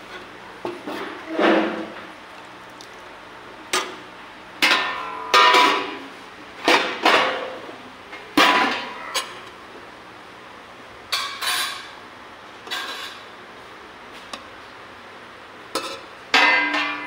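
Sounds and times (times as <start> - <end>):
metal trays clanking together: 4.6 - 6.0, 8.4 - 9.4, 15.8 - 17.0.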